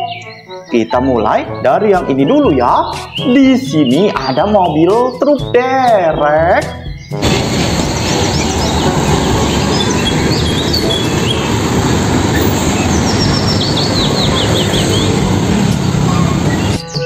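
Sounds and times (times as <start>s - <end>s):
small birds chirping: 0.0s - 17.0s
trucks and motorbikes passing: 7.2s - 17.0s.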